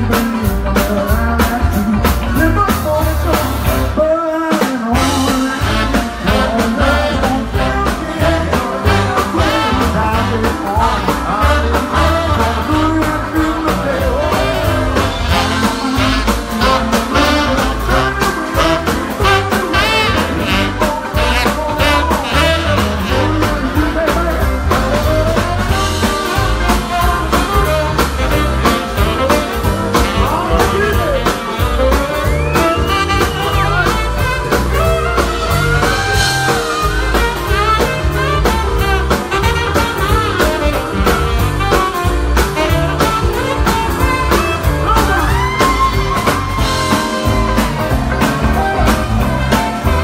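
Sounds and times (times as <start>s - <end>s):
live blues band: 0.0s - 50.0s
sliding lead guitar line: 0.0s - 50.0s
steady drumbeat: 4.6s - 50.0s.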